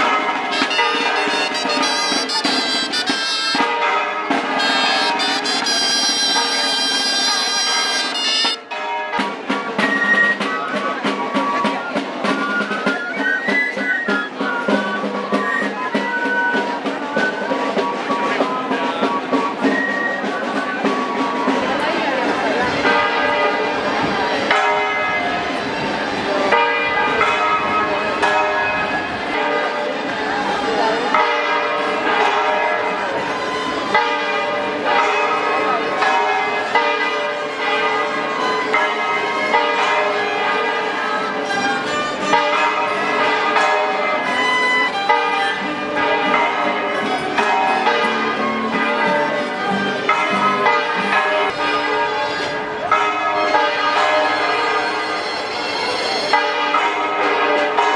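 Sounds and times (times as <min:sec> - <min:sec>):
church bells ringing: 0:00.0 - 0:09.7, 0:22.8 - 0:57.9
string band marching tune: 0:00.0 - 0:57.9
accordion: 0:00.5 - 0:03.7, 0:04.5 - 0:08.6
violin: 0:37.6 - 0:56.6.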